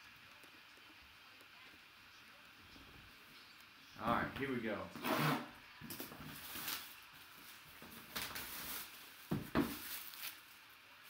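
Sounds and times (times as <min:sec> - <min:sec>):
box knocking on table: 0:09.3 - 0:09.8.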